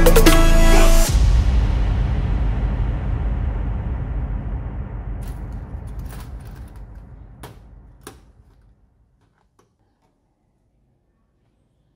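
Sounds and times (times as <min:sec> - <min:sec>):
low rumble: 0:01.6 - 0:08.5
metal keys clinking: 0:05.2 - 0:08.6.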